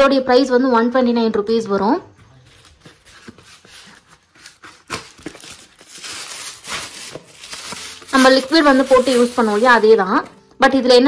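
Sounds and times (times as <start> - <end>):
plastic bag crinkling: 2.6 - 10.3.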